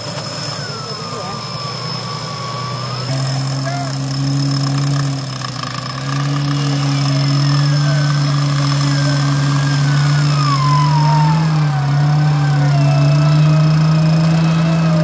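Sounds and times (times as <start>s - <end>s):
jeep engine humming: 0.0s - 15.0s
winch whine sliding down: 0.0s - 15.0s.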